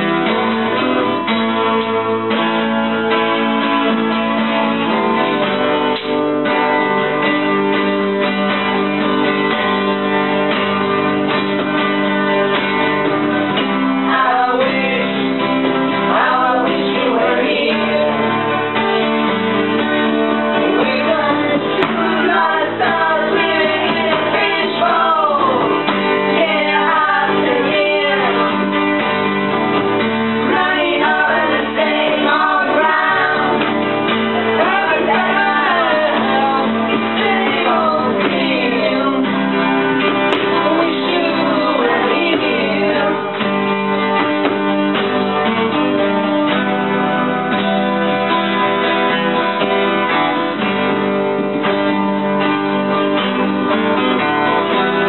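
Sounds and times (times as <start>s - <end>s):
acoustic guitars playing: 0.0s - 55.0s
group of voices singing: 13.5s - 19.0s, 20.5s - 43.6s.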